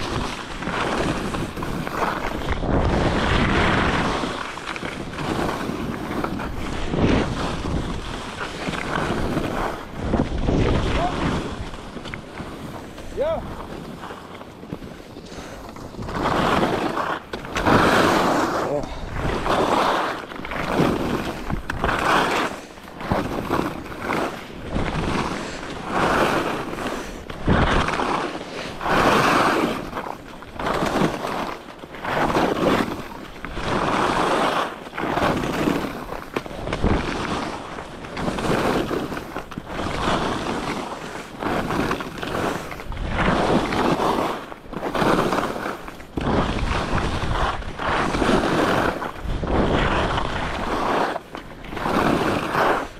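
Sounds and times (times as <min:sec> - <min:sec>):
wind buffeting microphone: 0:00.0 - 0:19.8, 0:46.1 - 0:50.9
skis scraping on snow: 0:00.0 - 0:52.9.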